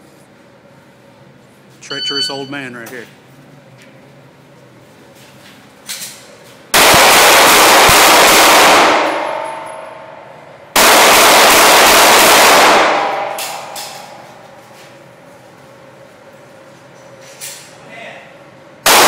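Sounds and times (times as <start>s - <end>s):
handgun fire with echo: 6.8s - 9.7s, 10.8s - 14.1s.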